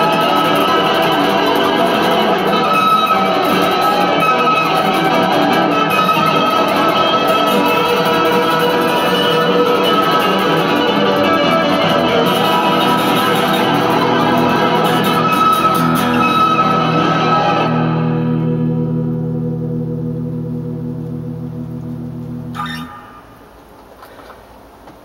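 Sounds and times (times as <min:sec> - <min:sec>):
electric guitar playing: 0:00.0 - 0:23.8
looped guitar rhythm part: 0:00.0 - 0:24.0.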